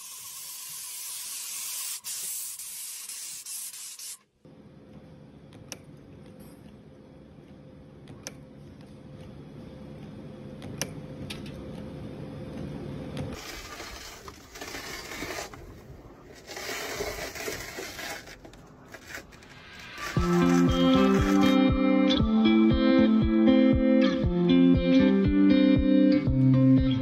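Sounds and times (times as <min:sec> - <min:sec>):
harsh scraping and crackling: 0:13.4 - 0:21.6
guitar music: 0:20.2 - 0:27.0.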